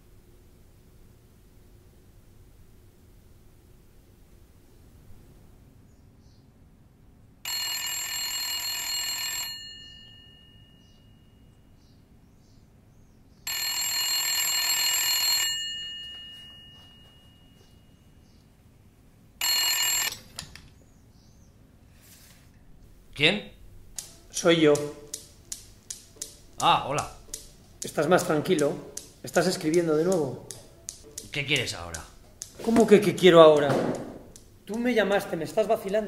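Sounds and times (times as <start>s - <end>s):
rotary telephone bell ringing: 7.5s - 11.4s, 13.5s - 17.8s, 19.4s - 20.3s.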